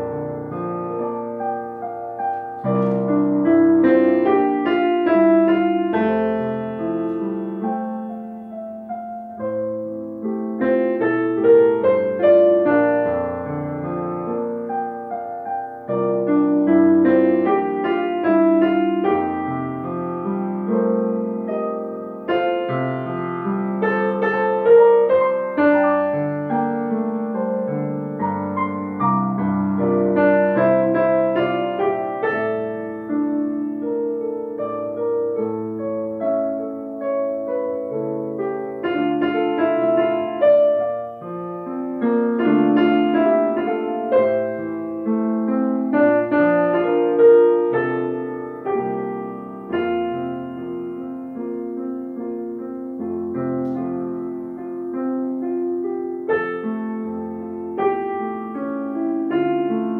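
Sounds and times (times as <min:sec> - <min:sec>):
piano accompaniment: 0:00.0 - 0:59.9.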